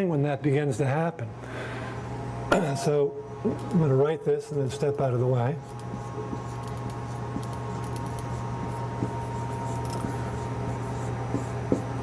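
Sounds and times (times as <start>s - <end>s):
low electrical hum: 0.0s - 12.0s
marker squeaking on paper: 5.6s - 12.0s.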